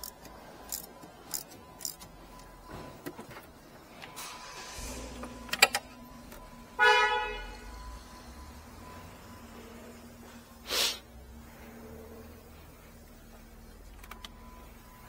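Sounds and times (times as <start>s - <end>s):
car horn blast: 6.5s - 7.9s.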